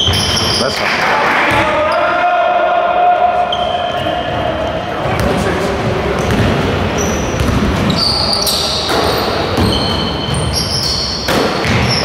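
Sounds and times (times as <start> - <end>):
sneakers squeaking: 0.0 - 2.2, 3.4 - 12.0
basketball dribbling: 6.2 - 6.6, 7.4 - 8.0.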